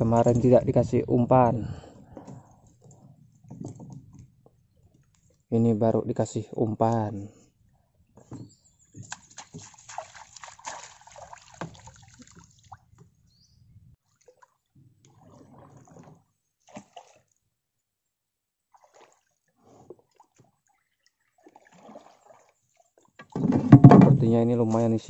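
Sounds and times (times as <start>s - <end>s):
water sloshing and dripping: 8.2s - 13.2s, 14.0s - 17.5s, 18.7s - 24.0s
small splashes: 9.0s - 13.0s, 14.0s - 17.4s, 18.7s - 23.4s
knocks: 23.4s - 24.2s.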